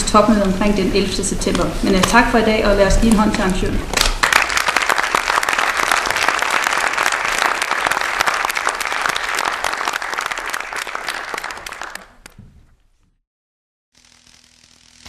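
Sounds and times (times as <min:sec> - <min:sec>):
audience applauding: 0:04.0 - 0:12.4.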